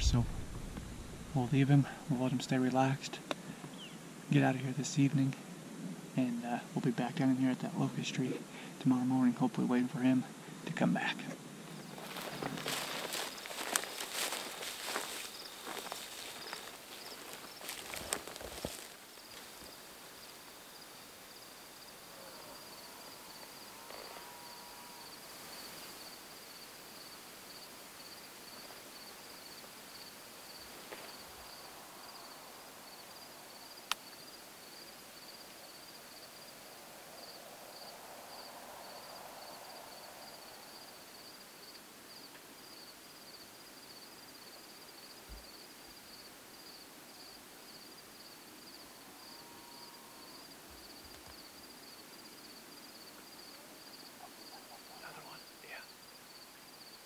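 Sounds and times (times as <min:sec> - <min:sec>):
insects chirping: 0:11.4 - 0:57.0.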